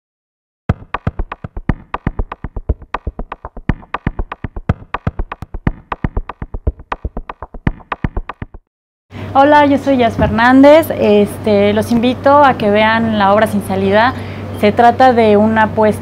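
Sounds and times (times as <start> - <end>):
electronic intro music: 0.7 - 8.6
synthesized percussive hits: 0.7 - 8.7.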